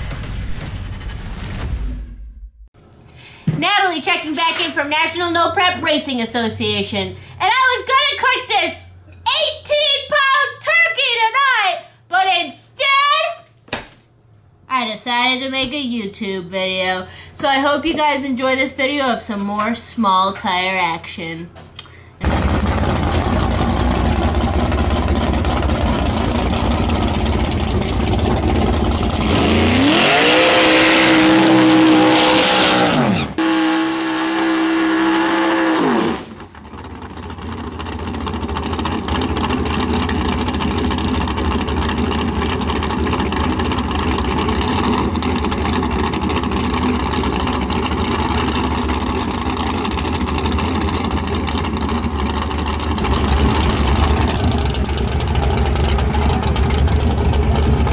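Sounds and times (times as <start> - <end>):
drag car engine rumbling and revving: 22.2 - 57.9.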